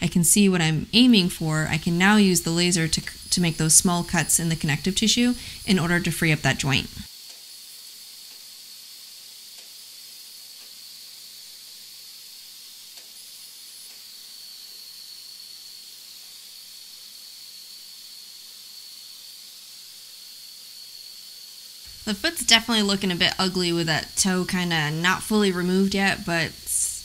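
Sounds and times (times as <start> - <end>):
faint high whine: 0.0 - 7.1, 20.2 - 27.0
airflow hiss: 1.0 - 7.1, 21.8 - 27.0.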